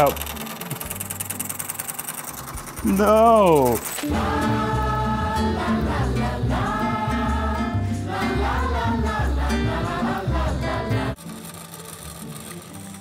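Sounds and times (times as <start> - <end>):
choir-like voices singing: 4.1 - 11.2.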